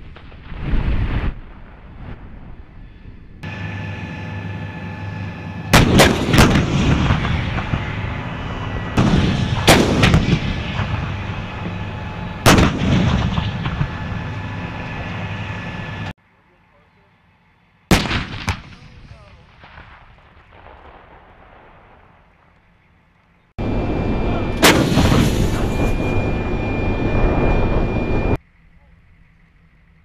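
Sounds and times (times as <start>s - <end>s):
vehicle engine running: 3.4s - 16.1s
heavy cannon blasts: 5.4s - 16.0s, 17.9s - 22.4s, 23.6s - 28.4s.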